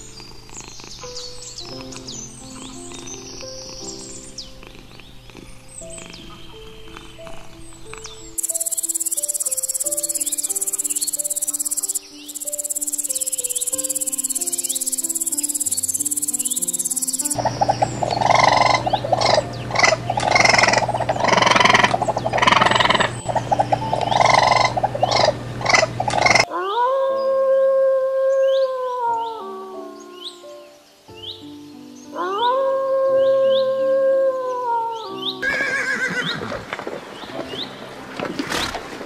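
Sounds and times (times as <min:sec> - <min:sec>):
noisy animal calls: 0:00.0 - 0:26.5
soft background music: 0:00.0 - 0:39.0
high insect trill: 0:06.0 - 0:26.4.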